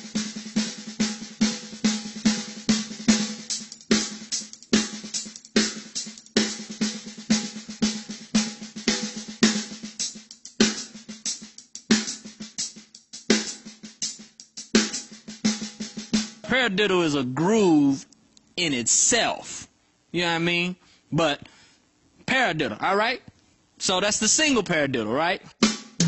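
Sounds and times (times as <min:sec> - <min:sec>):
drum kit groove: 0:00.0 - 0:18.0, 0:25.5 - 0:26.0.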